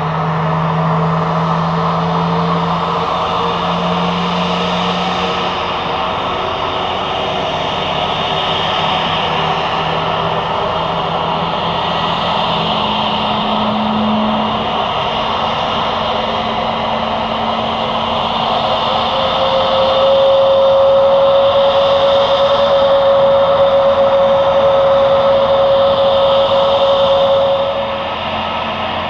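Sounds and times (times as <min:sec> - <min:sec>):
jet engines whining: 0:00.0 - 0:29.0
strong steady tone: 0:00.0 - 0:29.0.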